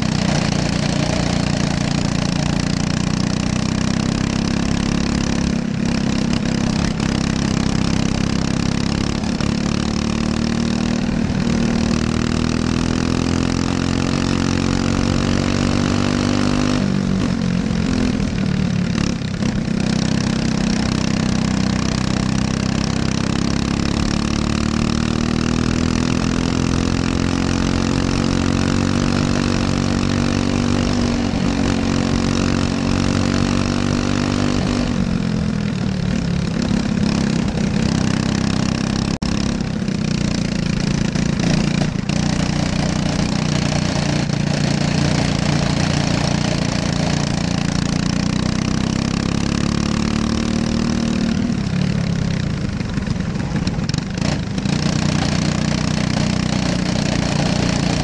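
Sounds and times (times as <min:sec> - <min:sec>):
kart engine running: 0:00.0 - 0:58.0.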